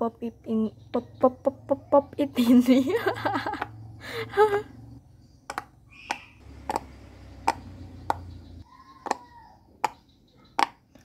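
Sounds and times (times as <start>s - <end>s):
fidget toy bubbles popping: 5.5s - 8.3s.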